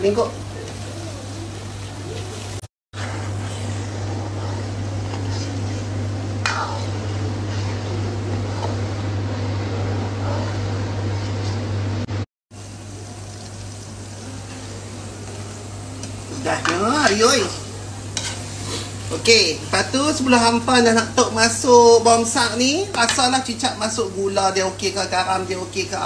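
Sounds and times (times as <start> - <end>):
chillies sizzling in oil: 0.0 - 9.7, 12.5 - 26.0
metal ladle stirring in wok: 18.1 - 18.9.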